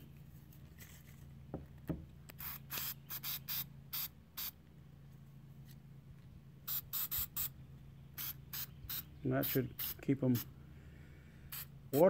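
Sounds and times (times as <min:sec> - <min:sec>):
aerosol can spraying: 0:02.4 - 0:04.6, 0:06.7 - 0:07.5, 0:08.2 - 0:10.5, 0:11.5 - 0:11.7.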